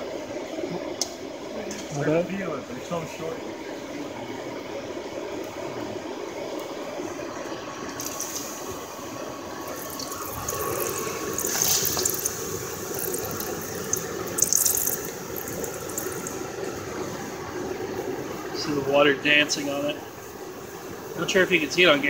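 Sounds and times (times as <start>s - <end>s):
water sizzling on hot metal: 0.1s - 22.0s.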